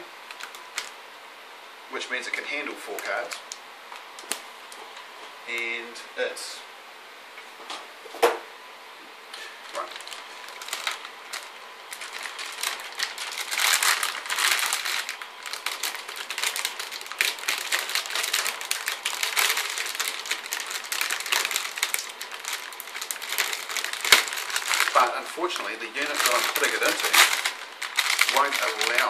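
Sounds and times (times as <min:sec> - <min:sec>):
plastic bag crinkling: 0:00.3 - 0:01.0, 0:09.6 - 0:29.0.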